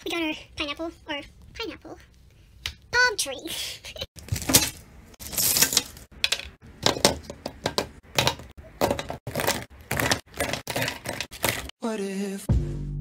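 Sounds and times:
plastic paint bottles clattering: 0:05.2 - 0:11.7.

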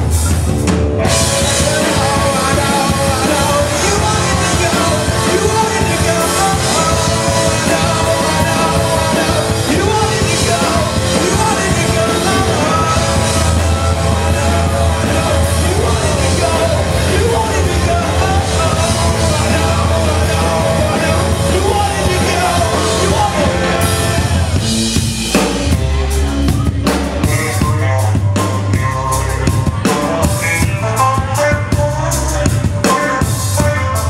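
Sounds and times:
rock band playing live: 0:00.0 - 0:34.0.

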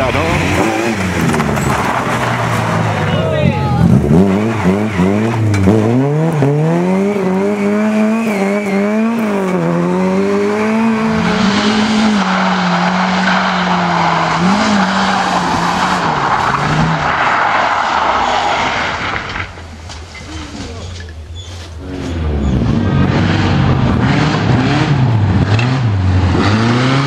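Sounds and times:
rally car engine revving: 0:00.0 - 0:19.6, 0:21.8 - 0:27.0.

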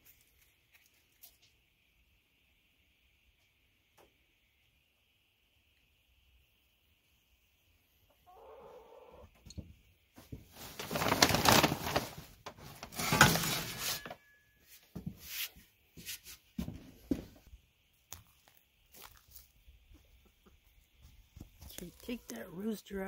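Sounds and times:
rustling and scraping of tools: 0:10.2 - 0:17.5.

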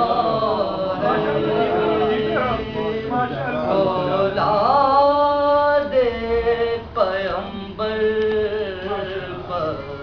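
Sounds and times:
man chanting: 0:00.0 - 0:10.0.

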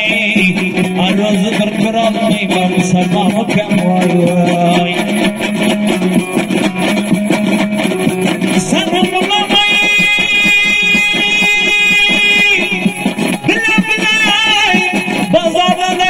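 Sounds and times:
lute strummed fast: 0:00.0 - 0:16.0
man singing held note: 0:08.6 - 0:16.0.

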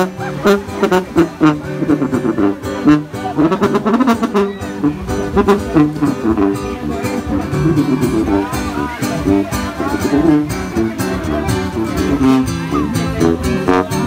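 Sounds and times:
lively brass music: 0:00.0 - 0:14.0.

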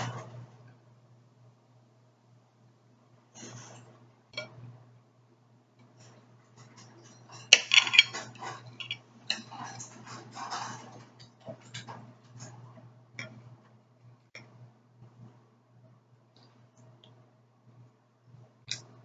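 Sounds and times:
knife scraping ceramic plate: 0:07.1 - 0:11.0.

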